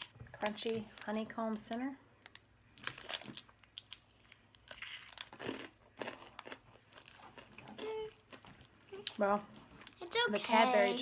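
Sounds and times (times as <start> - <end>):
foil wrapper crinkling: 0.0 - 5.4
crunchy chewing: 2.8 - 9.2.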